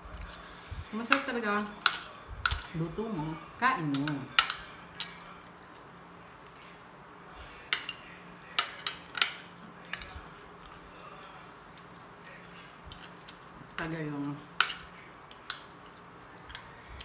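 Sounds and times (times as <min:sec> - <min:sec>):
faint low hum: 0:00.0 - 0:17.0
cutlery clinking on plate: 0:01.1 - 0:02.8, 0:03.9 - 0:05.4, 0:07.7 - 0:10.2, 0:14.6 - 0:15.8.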